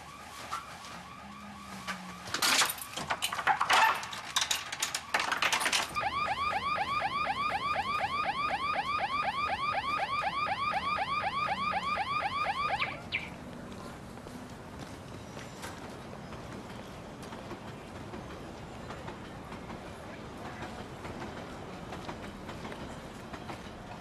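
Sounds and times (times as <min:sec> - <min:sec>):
crashing and banging: 0:02.2 - 0:06.0
car alarm whooping: 0:03.7 - 0:13.3.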